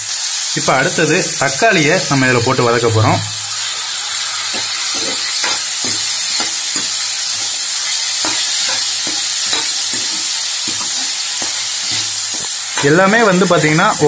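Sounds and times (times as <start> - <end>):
vegetables sizzling in oil: 0.0 - 14.0
ladle scraping a pan: 4.4 - 14.0.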